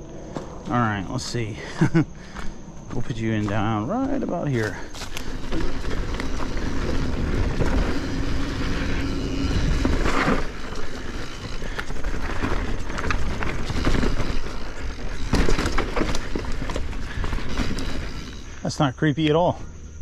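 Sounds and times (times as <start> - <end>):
bike tyre rumble: 0.0 - 19.9
bike knocks and rattles: 3.3 - 18.5.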